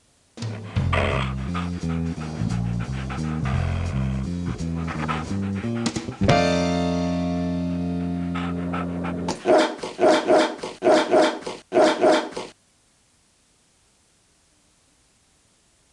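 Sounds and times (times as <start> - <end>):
held guitar chord: 6.2 - 9.3
dog barking: 9.3 - 12.5.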